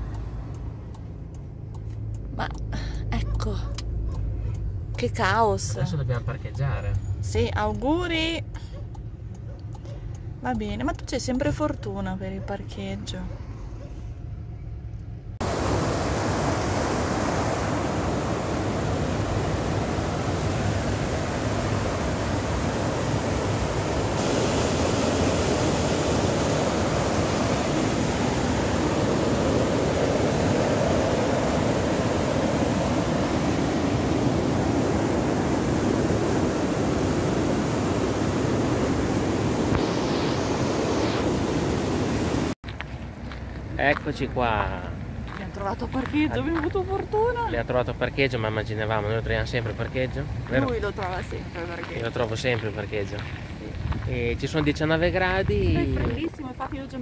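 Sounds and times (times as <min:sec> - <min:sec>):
stream rushing over rocks: 0:15.4 - 0:42.6.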